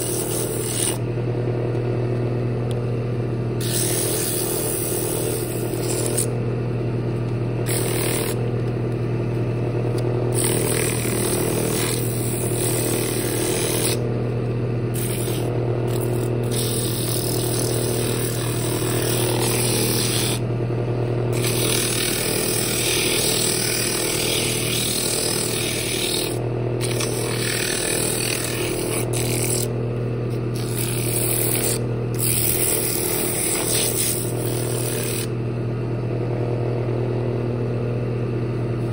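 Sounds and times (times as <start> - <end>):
sandpaper scraping spinning wood: 0.0 - 1.0, 3.6 - 6.3, 7.7 - 8.4, 10.3 - 14.0, 14.9 - 20.4, 21.3 - 29.7, 30.5 - 35.3
wood lathe humming: 0.0 - 1.9, 3.6 - 35.5.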